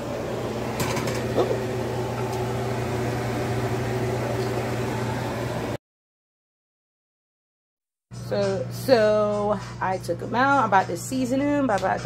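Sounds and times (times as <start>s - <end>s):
low hum: 0.0s - 5.8s
pot bubbling: 0.0s - 5.8s.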